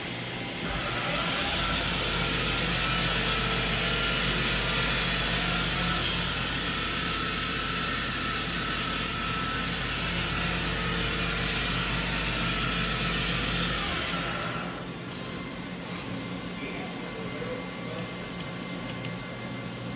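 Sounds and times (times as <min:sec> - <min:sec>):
low machine hum: 0:00.0 - 0:19.9
machine spindle spinning: 0:00.6 - 0:16.6.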